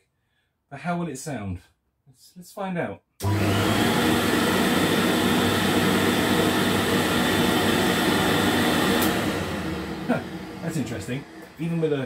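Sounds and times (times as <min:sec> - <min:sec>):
upright vacuum cleaner running: 0:03.2 - 0:12.0.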